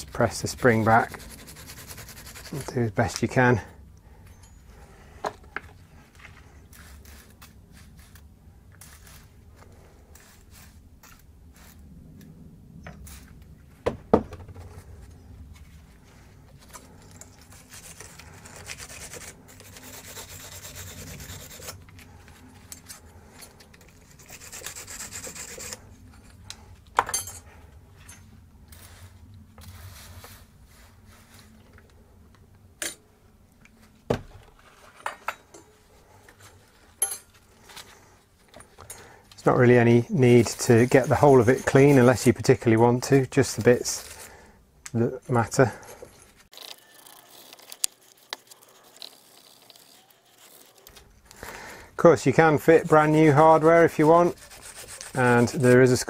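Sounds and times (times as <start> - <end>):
wire brush rasping on metal: 0.3 - 2.8, 16.6 - 21.8, 22.6 - 25.9, 39.4 - 44.4, 45.4 - 51.0, 52.1 - 56.0.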